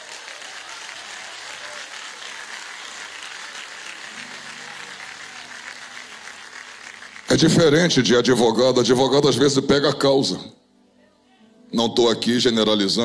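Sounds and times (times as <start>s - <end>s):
congregation applauding: 0.0s - 9.2s.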